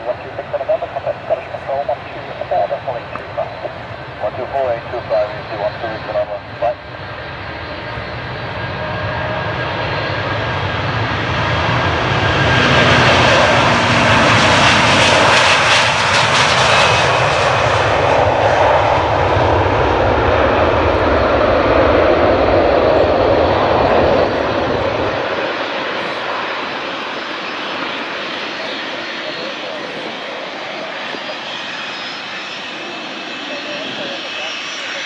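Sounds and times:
jet engines at takeoff thrust: 0.0s - 35.0s.

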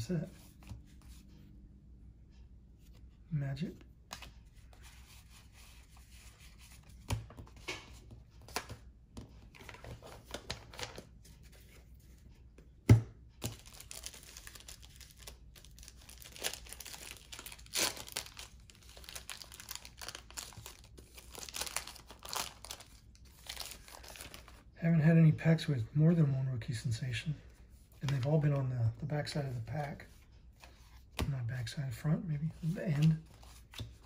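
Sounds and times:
cards tapping and clicking: 6.9s - 11.1s
wrapper tearing and crinkling: 13.6s - 24.5s.

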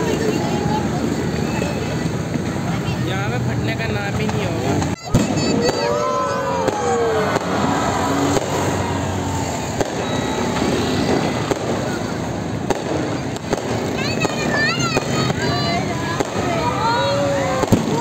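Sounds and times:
distant fireworks din: 0.0s - 18.0s
sharp firework bangs: 4.3s - 18.0s.

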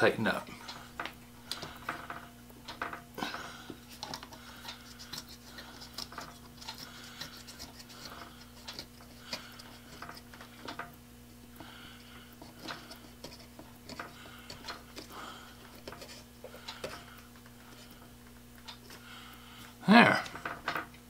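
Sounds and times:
steady low hum: 0.0s - 21.0s
clicks and taps of plastic and metal: 1.0s - 3.1s, 12.4s - 17.9s.

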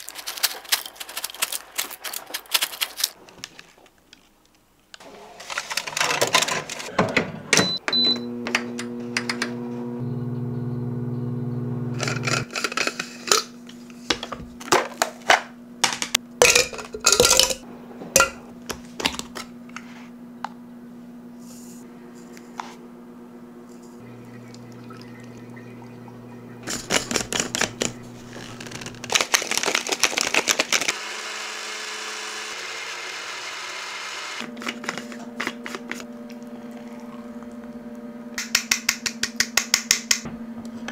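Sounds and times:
steady electric hum: 8.2s - 29.5s
utensils and dishes clinking: 16.4s - 17.6s.

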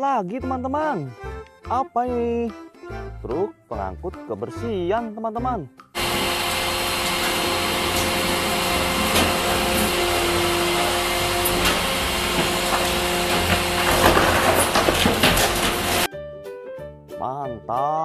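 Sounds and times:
garbage truck machinery humming: 6.0s - 16.1s
knocks and clatter: 6.0s - 16.1s.

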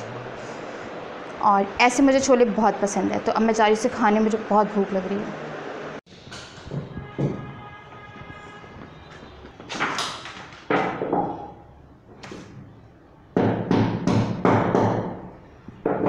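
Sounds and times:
bangs and knocks on a wall: 6.6s - 7.5s, 9.7s - 11.6s.

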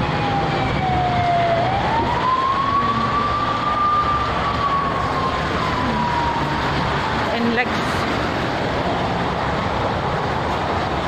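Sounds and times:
siren wailing: 0.0s - 7.6s
road traffic noise: 0.0s - 11.0s.

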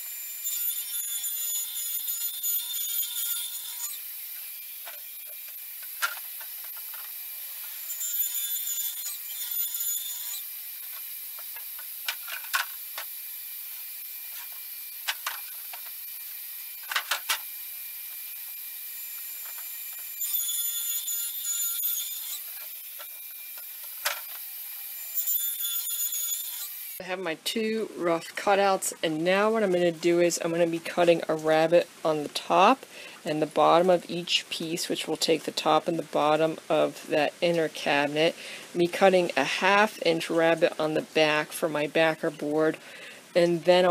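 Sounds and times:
table saw cutting plywood: 0.0s - 27.0s.

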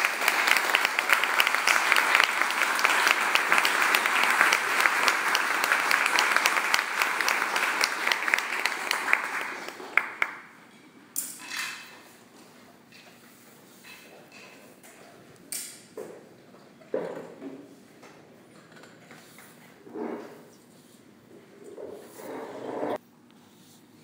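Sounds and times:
crowd applauding: 0.0s - 10.6s.

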